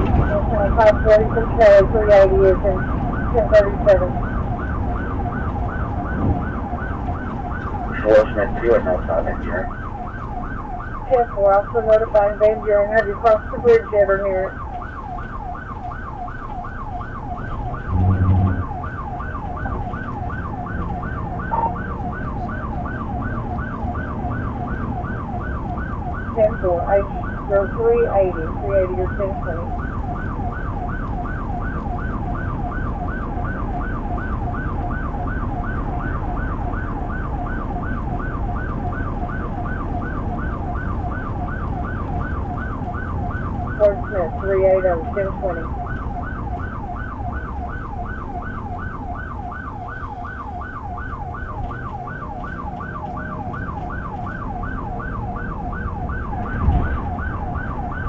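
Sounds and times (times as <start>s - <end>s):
police siren yelping: 0.0s - 58.0s
road and engine noise: 0.0s - 58.0s
short low tone: 17.9s - 18.8s.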